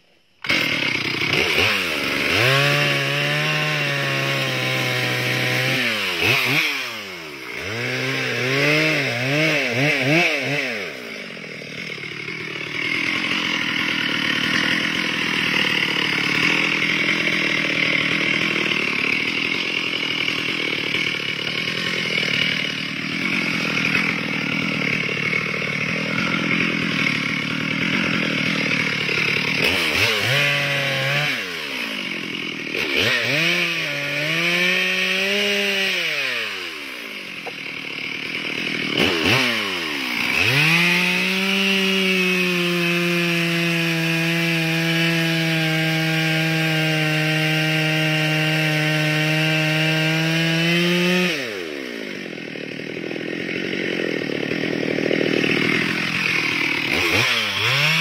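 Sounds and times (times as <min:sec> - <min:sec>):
chainsaw cutting tree trunk: 0:00.0 - 0:58.0
chainsaw engine revving: 0:00.4 - 0:58.0.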